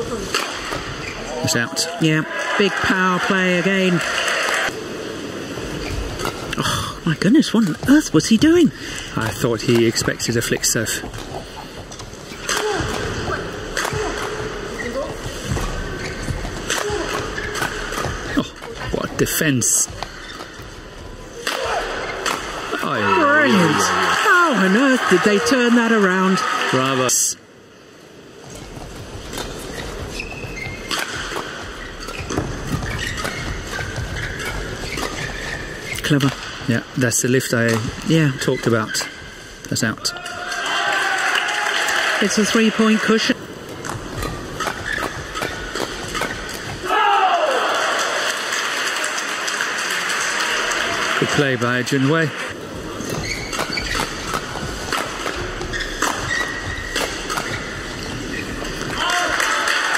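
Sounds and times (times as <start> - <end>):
shoes squeaking on court: 0.0 - 1.8, 4.2 - 26.0, 28.1 - 40.4, 42.3 - 46.9, 52.5 - 59.5
badminton racket hitting shuttlecock: 11.0 - 18.9, 19.9 - 23.4, 29.2 - 36.6, 43.7 - 46.9, 53.0 - 59.5
racket striking shuttlecock: 43.7 - 46.9.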